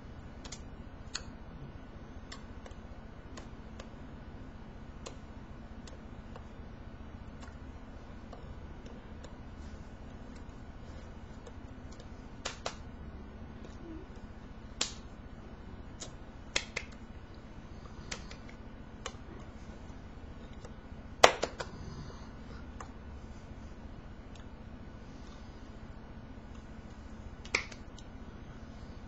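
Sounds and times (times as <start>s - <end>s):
faint room hum: 0.0s - 29.0s
hands slapping together: 0.4s - 1.3s, 11.4s - 12.8s, 14.8s - 15.1s, 16.0s - 17.0s, 18.0s - 19.2s, 20.6s - 21.8s, 27.4s - 28.1s.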